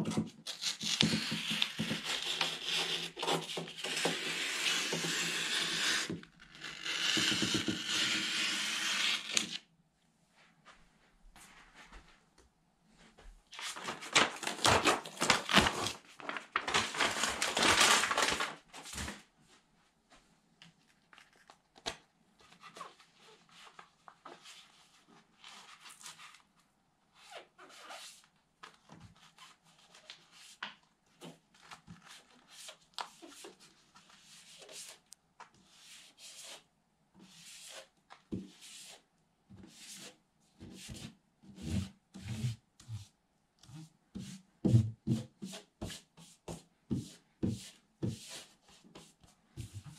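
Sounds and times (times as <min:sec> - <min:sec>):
sheet rustling: 0:12.9 - 0:19.7.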